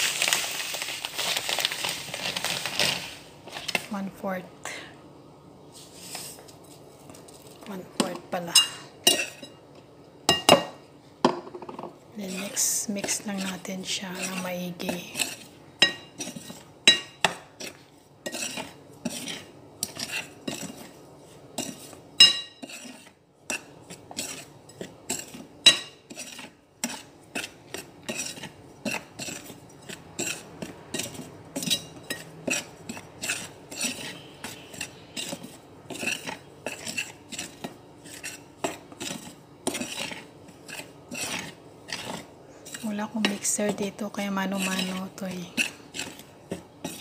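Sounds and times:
metal spoon scraping metal bowl: 8.0 - 9.6, 12.2 - 47.0.

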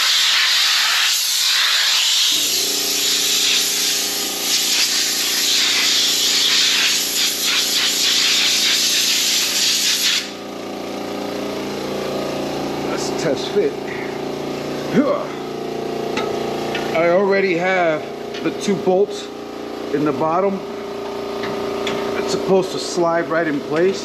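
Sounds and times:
compressed air hissing from blow gun: 0.0 - 10.4
machine humming: 10.2 - 24.0.

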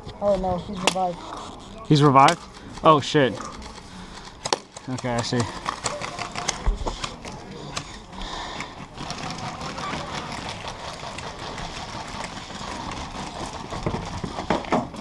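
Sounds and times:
airsoft guns firing: 4.4 - 7.2.

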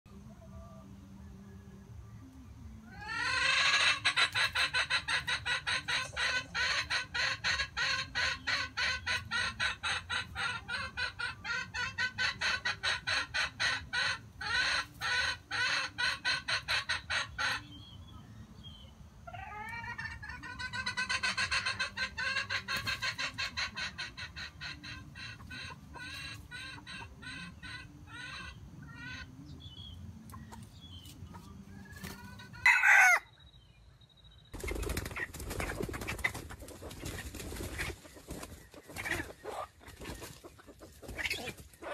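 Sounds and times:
junglefowl clucking: 2.9 - 17.8, 19.2 - 33.2, 34.6 - 41.9.

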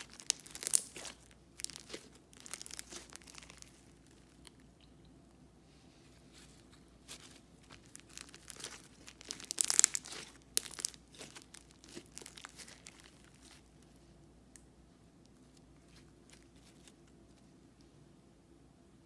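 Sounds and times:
slime crackling and popping: 0.0 - 4.8, 7.1 - 14.6.

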